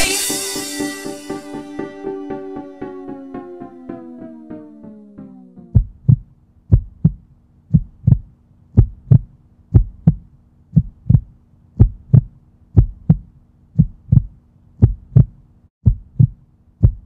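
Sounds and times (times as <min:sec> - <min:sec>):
heartbeat thumps: 0:05.6 - 0:17.0.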